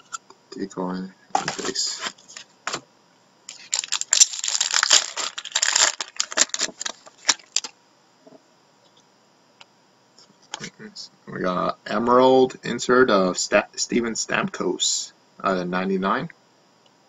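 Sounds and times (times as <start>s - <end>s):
cards being shuffled: 1.4s - 2.8s, 3.5s - 7.7s.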